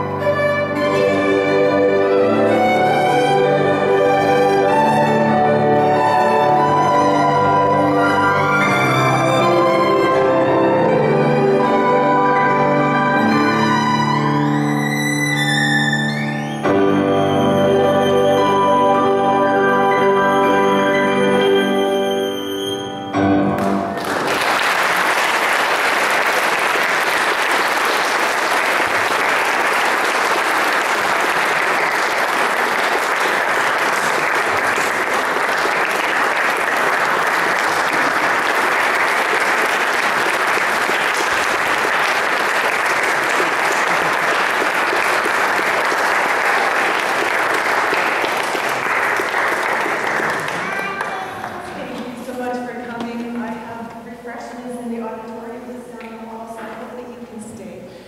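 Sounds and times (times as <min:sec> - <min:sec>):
violin and piano chord: 0:00.0 - 0:24.0, 0:50.0 - 0:53.8
audience applauding: 0:00.9 - 0:11.6, 0:23.6 - 0:52.5.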